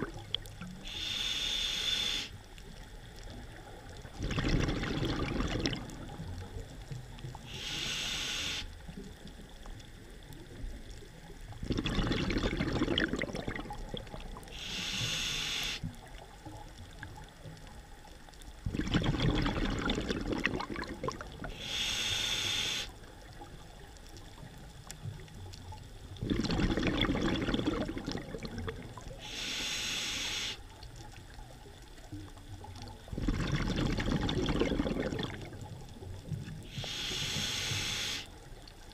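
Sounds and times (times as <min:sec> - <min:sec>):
exhaled air bubbling: 0:00.0 - 0:38.9
regulator hiss on inhale: 0:00.7 - 0:02.5, 0:07.4 - 0:09.1, 0:14.4 - 0:16.0, 0:21.4 - 0:23.1, 0:29.1 - 0:30.8, 0:36.6 - 0:38.7.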